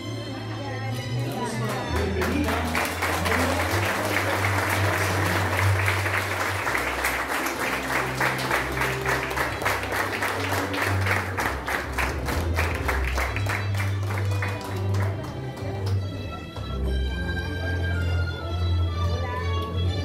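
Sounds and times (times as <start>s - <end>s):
audience applauding: 1.2s - 16.2s.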